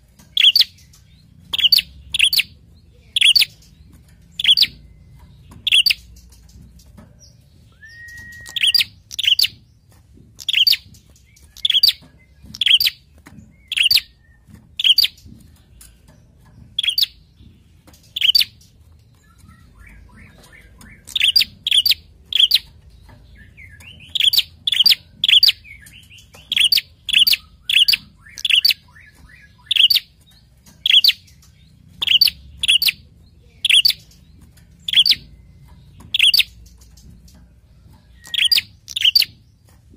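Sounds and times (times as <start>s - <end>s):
bird chirping sharply: 0.3s - 6.4s, 7.2s - 9.7s, 10.4s - 15.2s, 18.1s - 18.6s, 19.2s - 34.2s, 34.8s - 36.9s, 38.1s - 39.4s
bird whistle: 7.7s - 9.5s.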